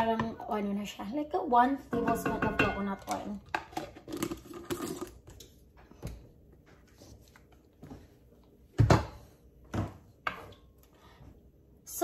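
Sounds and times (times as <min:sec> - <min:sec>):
kitchen items knocking: 0:01.9 - 0:04.4.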